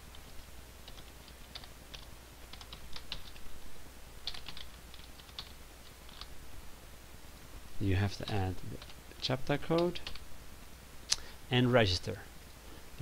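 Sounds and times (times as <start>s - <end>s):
typing on computer keyboard: 0.8s - 3.4s, 4.2s - 6.3s.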